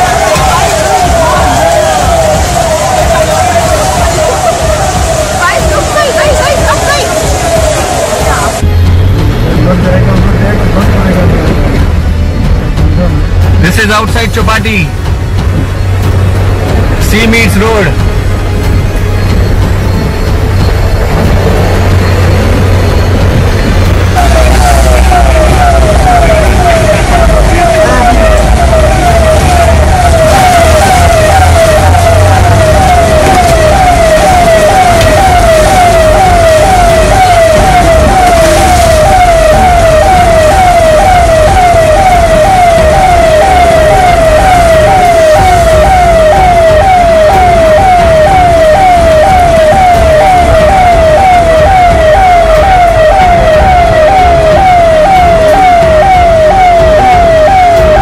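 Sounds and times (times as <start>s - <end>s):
siren-like alarm tone sweeping down: 0.0s - 8.7s, 20.7s - 58.0s
low rumble: 17.9s - 58.0s.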